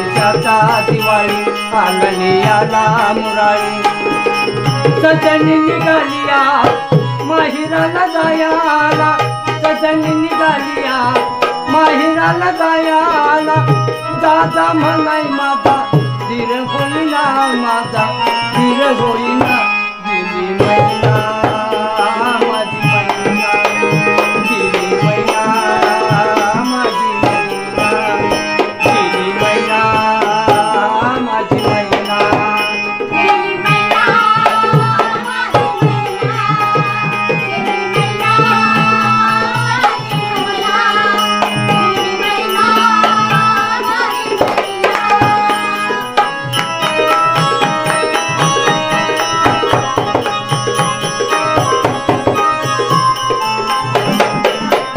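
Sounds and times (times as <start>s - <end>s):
electronic keyboard melody: 0.0s - 54.9s
small hand cymbals ringing: 31.8s - 54.9s.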